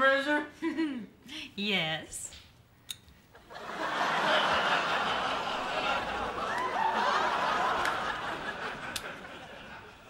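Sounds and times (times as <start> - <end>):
studio audience laughing: 3.4 - 10.0.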